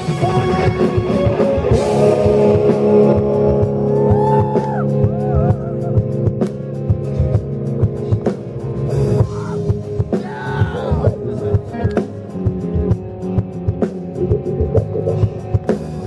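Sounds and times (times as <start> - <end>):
male lead vocal singing: 0.0 - 4.4, 9.3 - 12.2
drum kit: 0.0 - 16.0
electric guitars: 0.0 - 16.0
rock band playing: 0.0 - 16.0.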